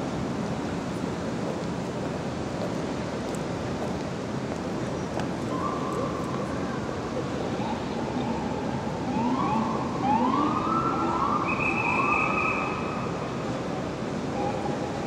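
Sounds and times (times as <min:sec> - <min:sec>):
city traffic hum: 0:00.0 - 0:15.0
steady high siren tone: 0:07.6 - 0:13.2
police sirens whooping: 0:08.2 - 0:12.8.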